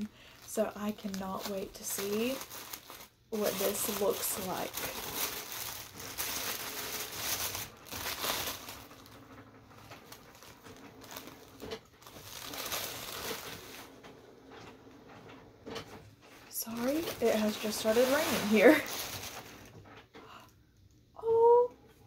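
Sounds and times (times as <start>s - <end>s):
paper wrapping crumpling: 0.0s - 14.1s, 16.6s - 19.8s.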